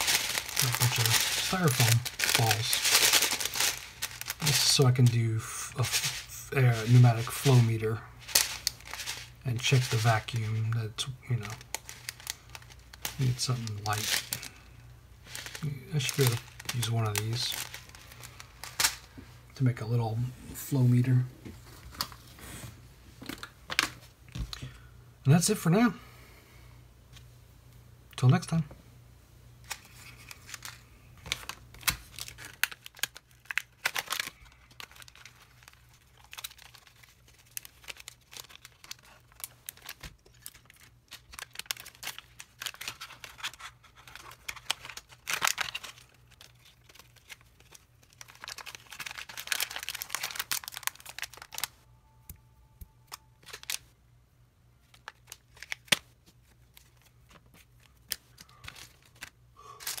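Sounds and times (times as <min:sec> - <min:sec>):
plastic bags crinkling: 0:00.0 - 0:19.2, 0:29.6 - 0:51.8, 0:53.0 - 0:53.9, 0:54.8 - 1:00.0.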